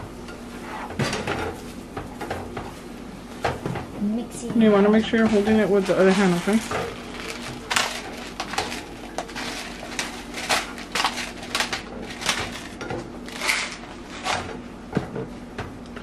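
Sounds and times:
pepper grinder twisting: 6.0 - 13.8.

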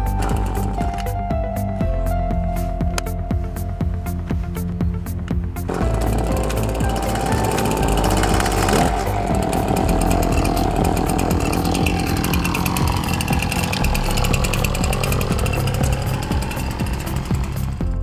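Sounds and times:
brushcutter engine revving: 5.7 - 18.0.

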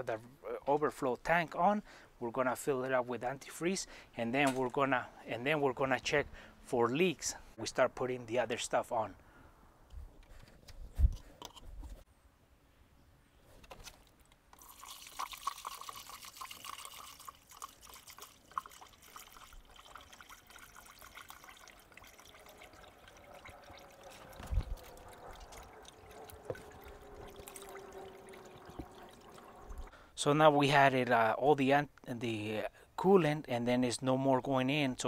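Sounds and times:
liquid trickling into a funnel: 14.5 - 29.9.

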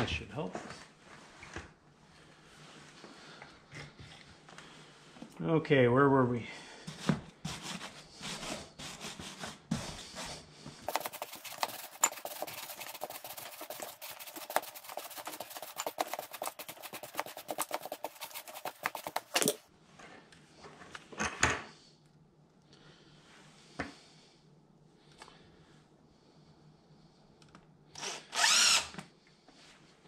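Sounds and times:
bristle brush scrubbing rubber: 6.9 - 19.6.

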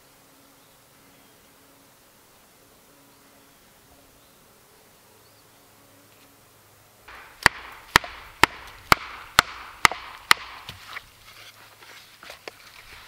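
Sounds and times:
wooden mallet striking metal: 7.1 - 10.8
wood crackling and knocks: 7.1 - 11.0.

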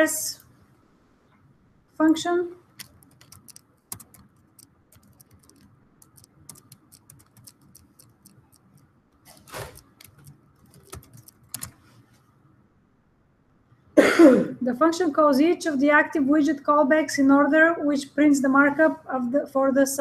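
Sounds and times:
computer keyboard keys clicking: 2.8 - 11.8.

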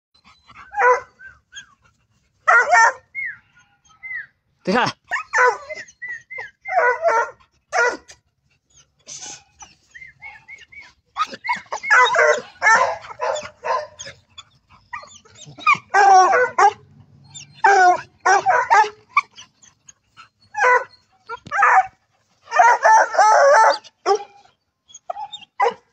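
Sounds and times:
dogs barking and yelping: 0.2 - 4.4, 5.0 - 25.9.

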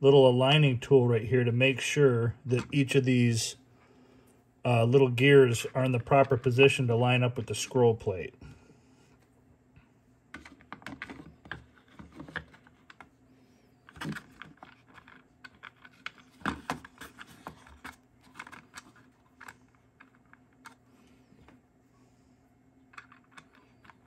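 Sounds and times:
plastic parts clicking: 13.8 - 20.8, 22.9 - 24.0.

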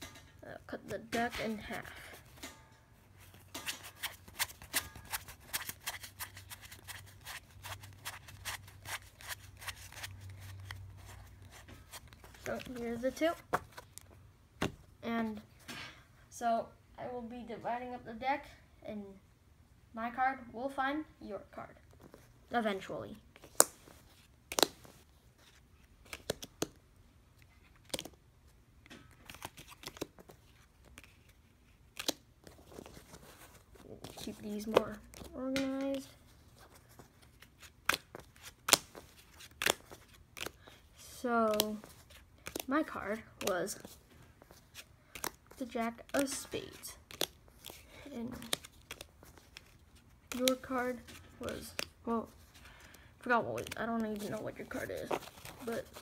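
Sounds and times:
playing cards clicking: 24.5 - 24.9, 26.0 - 26.8, 27.7 - 28.2, 31.9 - 33.0, 41.5 - 42.7, 45.1 - 45.5, 47.1 - 51.9.

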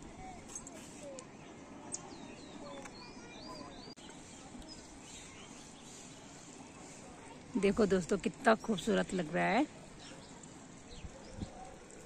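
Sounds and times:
town background noise: 0.0 - 12.0
birds chirping: 0.2 - 12.0.

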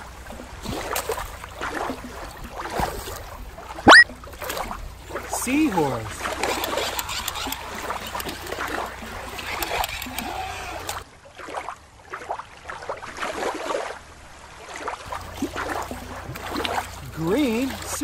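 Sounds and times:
water lapping against rock: 0.0 - 18.0
scattered short sounds: 6.2 - 11.0.

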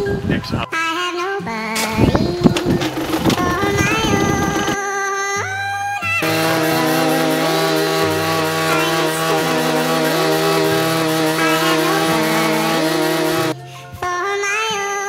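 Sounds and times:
moped engine revving: 2.0 - 4.8, 6.2 - 13.6.

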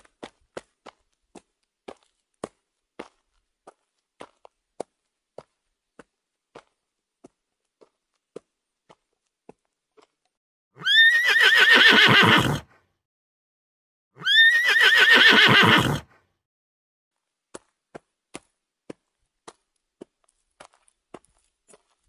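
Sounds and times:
horse whinnying: 10.8 - 12.8, 14.2 - 16.2.

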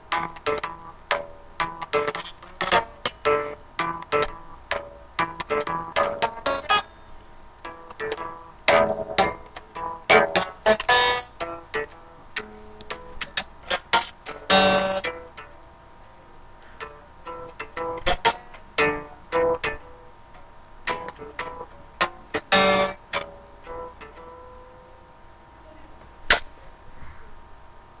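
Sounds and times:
electric guitar notes and chords: 0.0 - 6.8, 7.6 - 15.6, 16.8 - 20.1, 20.8 - 24.8.

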